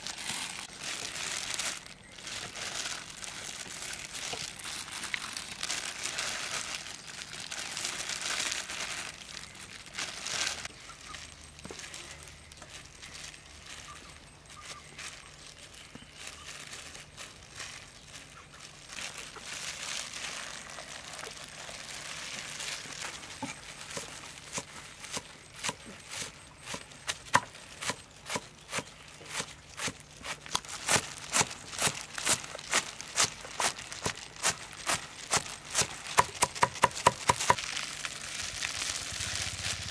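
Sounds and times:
vegetables rustling: 0.0 - 39.9.

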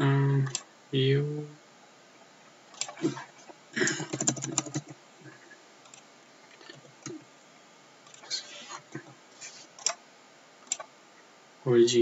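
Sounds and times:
computer keyboard typing: 3.8 - 5.0.

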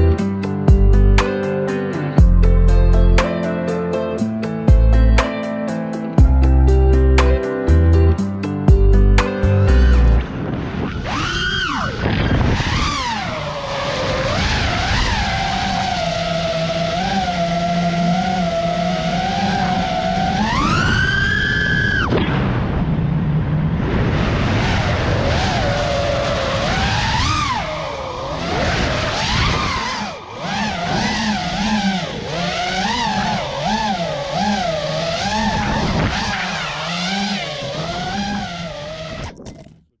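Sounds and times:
drone motors whining: 6.0 - 23.0, 24.1 - 39.8.

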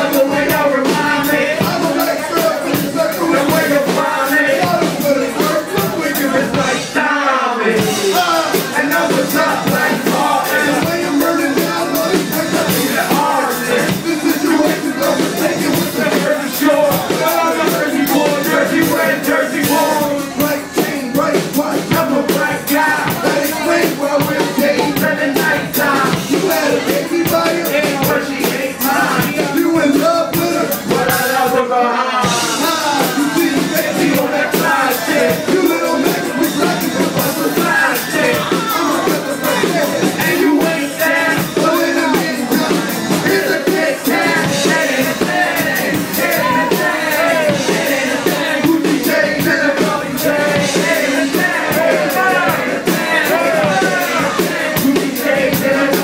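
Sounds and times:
hip-hop drum beat: 0.0 - 56.0
vocals through microphones: 0.0 - 56.0.

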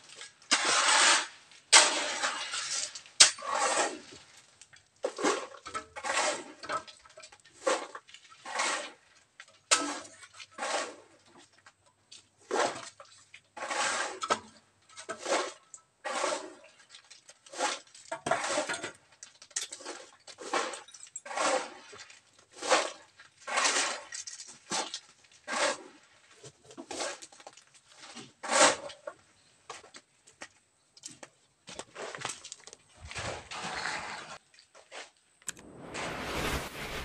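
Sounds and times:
shovels scraping into gravel: 0.0 - 4.5, 17.5 - 18.9, 19.6 - 26.1, 31.9 - 37.0.

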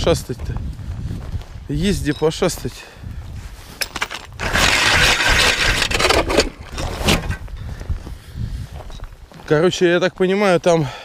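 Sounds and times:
footsteps crunching through snow: 0.3 - 4.4, 6.6 - 10.6.

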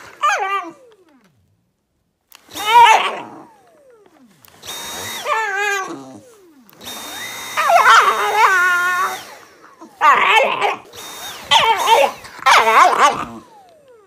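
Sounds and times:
dog whining: 0.0 - 1.3, 2.5 - 14.0
handheld vacuum motor: 0.0 - 1.6, 2.2 - 14.0
dog growling: 2.6 - 3.6, 5.2 - 6.6, 9.7 - 10.9, 11.5 - 13.6.

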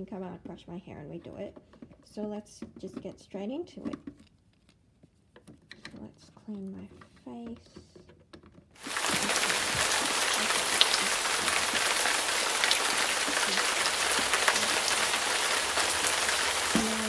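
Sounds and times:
water running from sink tap: 8.8 - 17.0.

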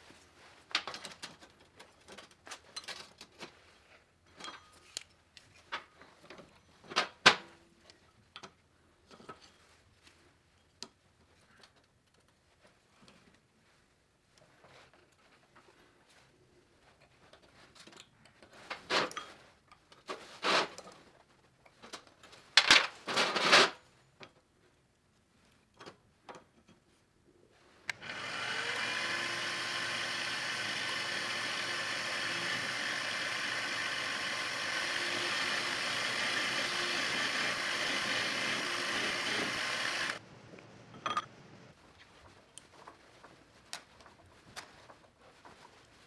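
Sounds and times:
drill boring into metal: 27.9 - 40.2
drill motor whine: 27.9 - 40.2.

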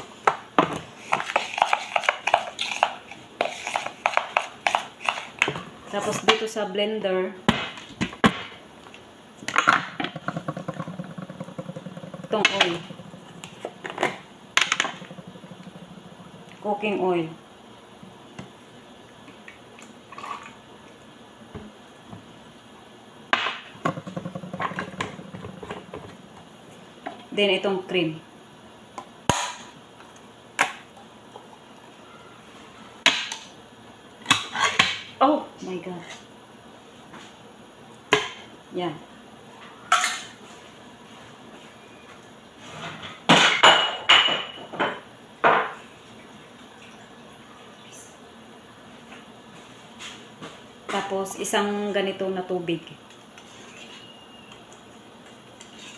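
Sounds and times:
kitchenware knocking and clinking: 9.6 - 16.4, 43.3 - 45.8.

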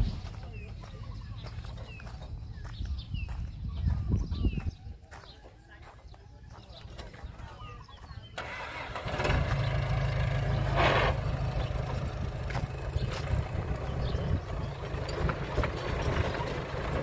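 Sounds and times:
diesel engine running loudly: 8.4 - 17.0.

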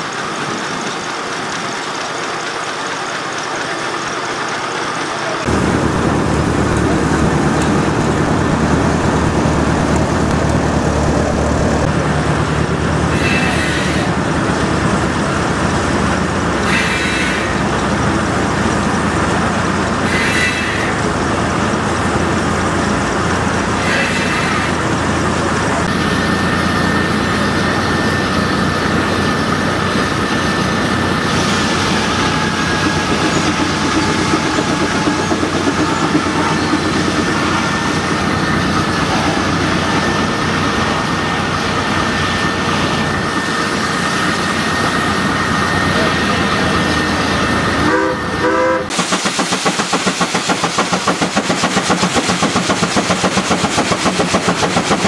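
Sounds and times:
steam engine mechanical clatter: 0.0 - 24.8, 25.6 - 41.2, 48.9 - 55.0
steady whine: 4.0 - 54.9
hissy steam bursts: 13.1 - 14.3, 16.6 - 17.8, 20.0 - 21.2, 23.8 - 24.9, 42.6 - 55.0.

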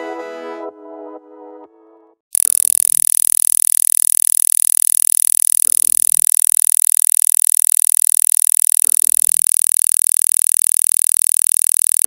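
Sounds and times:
rapidly pulsing tone: 2.4 - 12.0.

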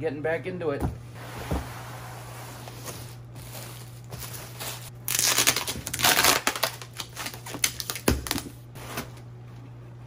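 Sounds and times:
cardboard scraping: 1.2 - 4.9
plastic packing crinkling: 3.4 - 8.5.

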